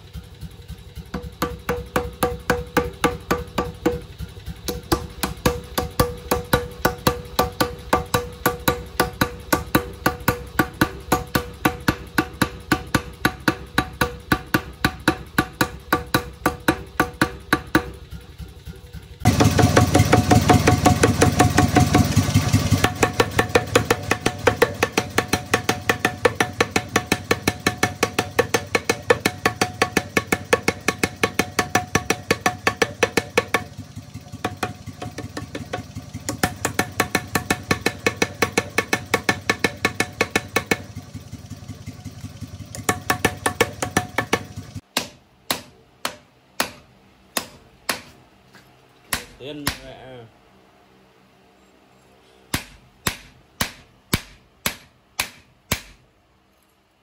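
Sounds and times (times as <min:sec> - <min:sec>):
motor running steadily: 0:00.0 - 0:44.8.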